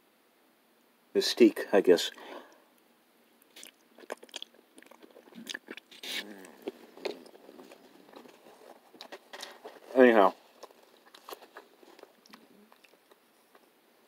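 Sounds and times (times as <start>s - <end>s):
mouth clicks: 3.4s - 7.4s
person chewing food: 3.4s - 13.7s.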